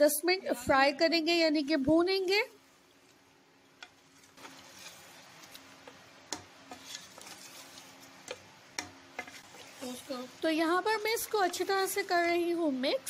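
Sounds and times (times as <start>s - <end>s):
wooden spatula scraping metal pot: 4.0s - 5.6s, 6.3s - 8.4s, 9.2s - 12.4s.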